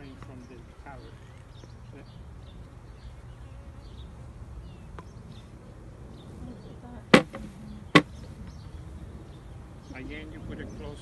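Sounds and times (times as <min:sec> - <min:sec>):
honeybees buzzing: 0:00.0 - 0:11.0
sharp loud knock: 0:07.1 - 0:07.4.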